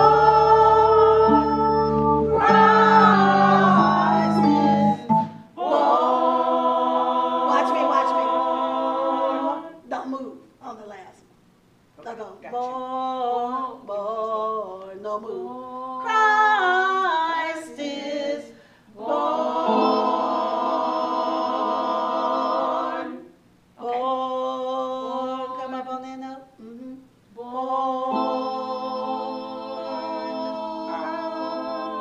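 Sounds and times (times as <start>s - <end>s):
choir singing a cappella: 0.0s - 9.9s, 12.8s - 32.0s.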